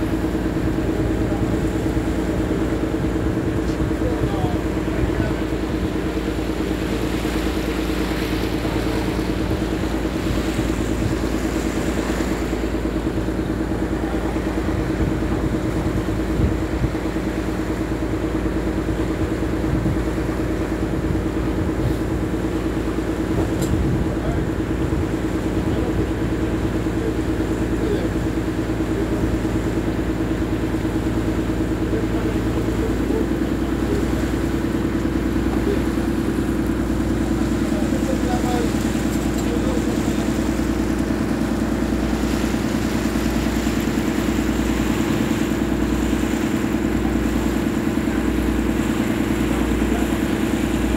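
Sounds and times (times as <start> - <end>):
boat motor humming: 0.0 - 50.9
rushing water: 0.0 - 50.9
wind: 0.0 - 50.9.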